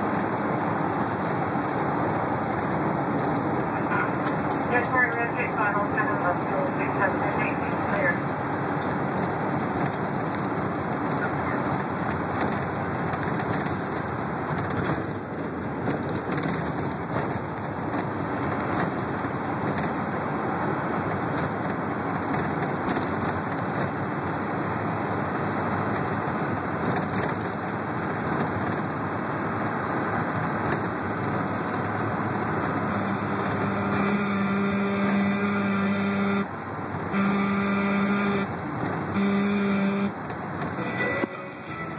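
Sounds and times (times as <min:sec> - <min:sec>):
bus engine and road rumble: 0:00.0 - 0:41.9
horn blasts: 0:03.8 - 0:08.2, 0:32.9 - 0:41.9.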